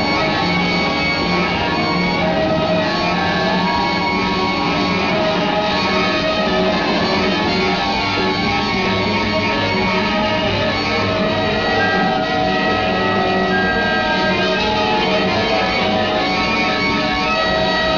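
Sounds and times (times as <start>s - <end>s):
flute: 0.0s - 17.9s
trumpet: 0.0s - 17.9s.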